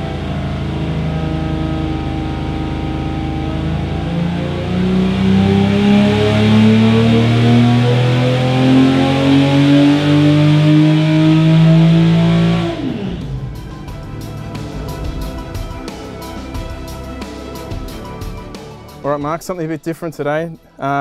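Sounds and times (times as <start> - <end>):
engine revving at full throttle: 0.0 - 16.9.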